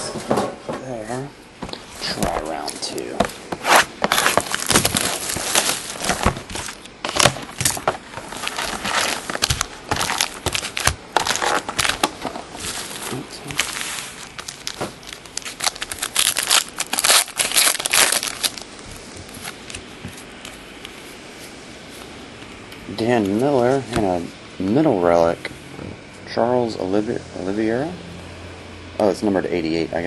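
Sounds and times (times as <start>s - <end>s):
faint room hiss: 0.0s - 30.0s
foil wrappers crinkling: 2.6s - 21.1s.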